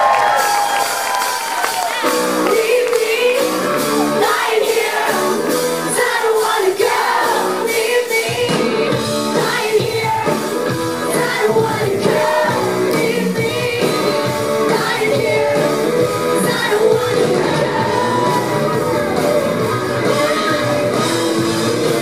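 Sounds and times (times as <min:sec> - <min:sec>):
live rock band playing: 0:00.0 - 0:22.0
woman singing: 0:02.4 - 0:04.8, 0:06.0 - 0:10.5, 0:11.1 - 0:18.4.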